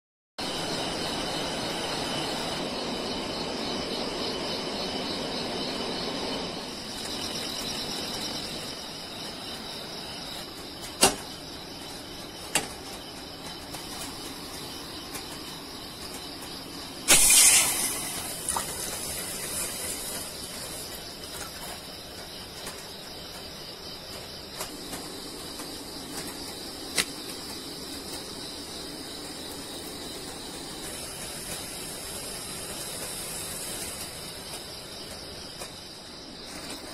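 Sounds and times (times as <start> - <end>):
insects chirping: 0.4 - 36.9
loud hiss: 15.6 - 22.1, 24.6 - 36.9.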